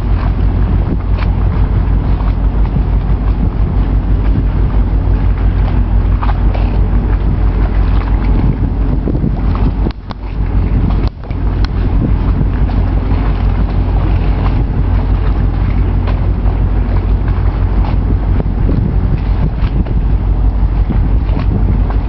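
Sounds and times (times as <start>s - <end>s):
faint engine drone: 0.0s - 22.0s
wind buffeting microphone: 0.0s - 22.0s.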